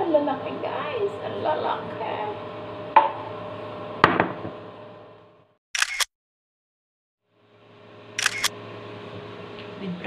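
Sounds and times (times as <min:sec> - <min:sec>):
camera shutter clicks: 0:05.8 - 0:06.1, 0:08.2 - 0:08.5.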